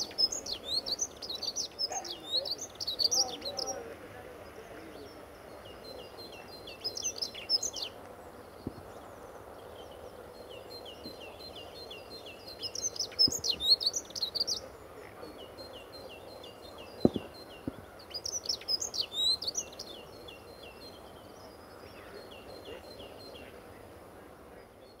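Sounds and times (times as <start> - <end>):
bird repeated chirps: 0.0 - 3.8, 10.9 - 21.0
bird warbling song: 0.0 - 25.0.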